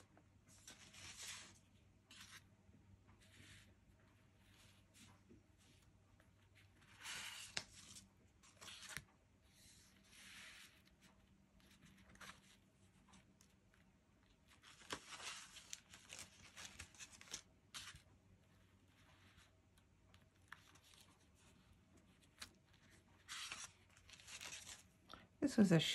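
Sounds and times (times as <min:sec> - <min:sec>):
cards rustling and sliding: 0:00.5 - 0:02.4, 0:06.8 - 0:09.0, 0:14.5 - 0:18.0, 0:22.2 - 0:24.9.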